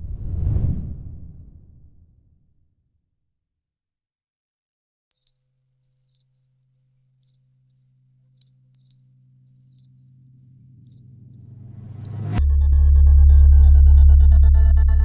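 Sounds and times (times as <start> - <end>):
rising noise swell: 0.0 - 2.2
high electronic chirps: 5.1 - 10.1
low bass drone: 10.5 - 15.0.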